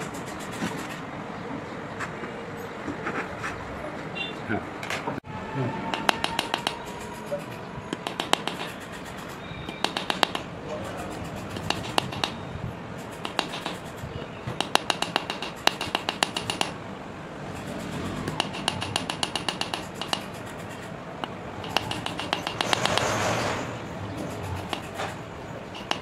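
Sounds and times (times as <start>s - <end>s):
small hammer tapping metal ring: 9.7s - 10.5s, 18.4s - 20.3s.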